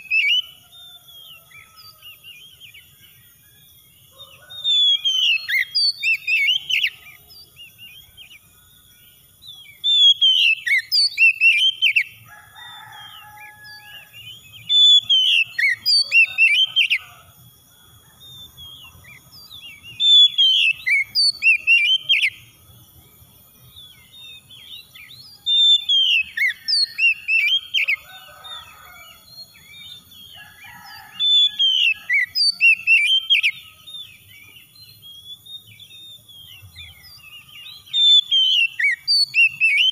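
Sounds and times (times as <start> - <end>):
bird singing whistled notes: 0.0 - 39.9.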